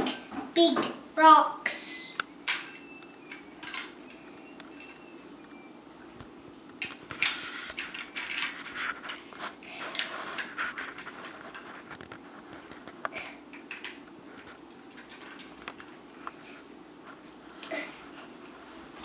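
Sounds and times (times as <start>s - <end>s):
plastic toy bricks clicking: 2.5s - 4.0s.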